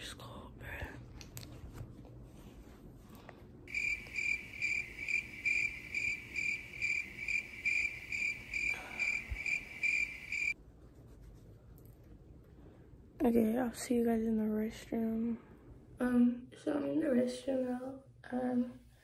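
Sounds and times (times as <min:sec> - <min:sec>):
high electronic alarm beeping: 0:03.7 - 0:10.6.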